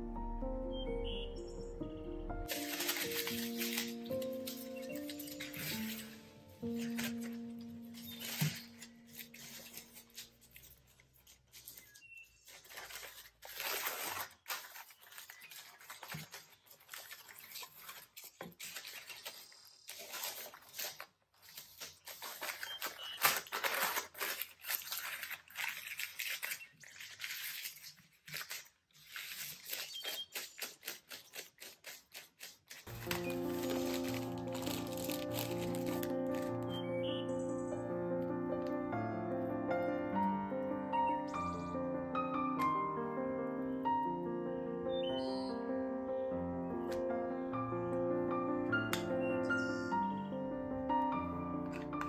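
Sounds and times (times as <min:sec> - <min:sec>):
baking paper rustling and crinkling: 0:02.4 - 0:37.6.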